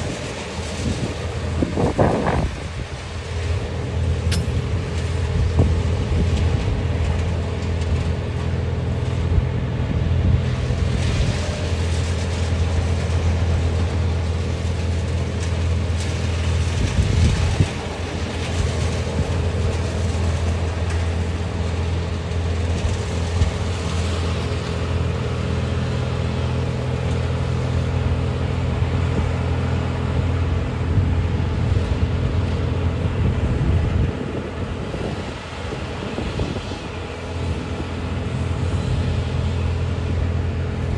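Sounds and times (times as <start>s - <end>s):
diesel engine humming: 0.0s - 40.9s
wind on microphone: 0.8s - 3.0s, 30.8s - 37.2s.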